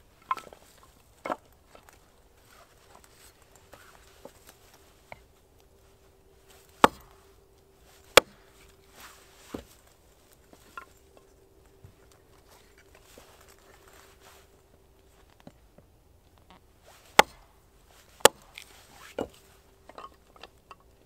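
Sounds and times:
hatchet chopping firewood: 0.2s - 2.0s, 6.5s - 11.2s, 17.0s - 20.9s
small clicks of wood pieces: 10.3s - 11.4s, 18.1s - 21.0s.

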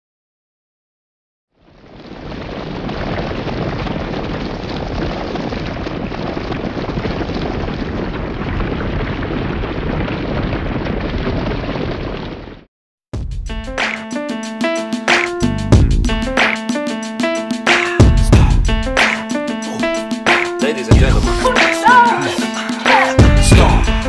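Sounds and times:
deep rushing noise: 18.0s - 21.7s, 22.7s - 24.0s.

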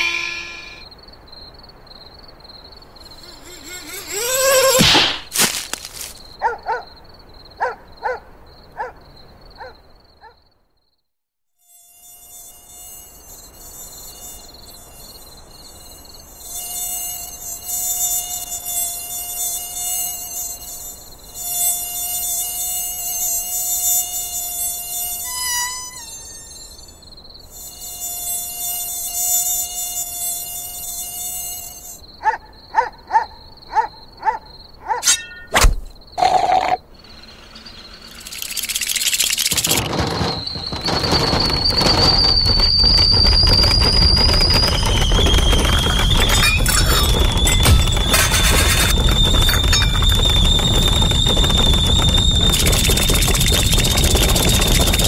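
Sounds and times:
mosquito wings whining: 0.0s - 0.8s, 3.0s - 6.3s, 35.5s - 55.0s
short quick chirps: 35.0s - 42.9s.

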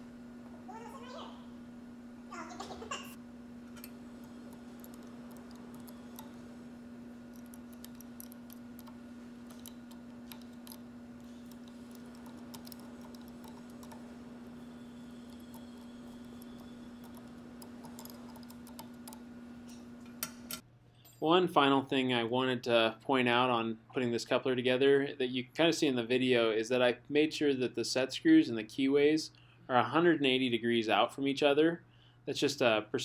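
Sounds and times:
steady low hum: 0.0s - 33.0s
metal parts clicking and tapping: 3.7s - 6.5s, 7.3s - 20.6s.

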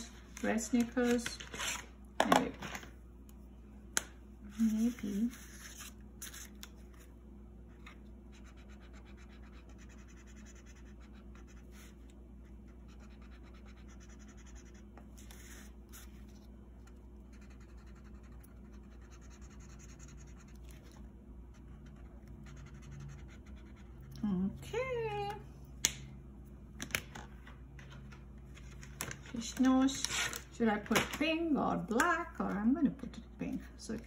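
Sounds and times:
marker scratching on paper: 8.3s - 12.0s, 12.6s - 16.3s, 17.3s - 21.0s, 21.8s - 24.2s.

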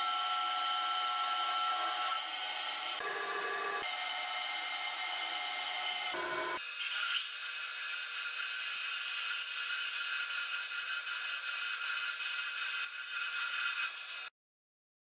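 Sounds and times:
lathe drilling metal: 0.0s - 14.3s.

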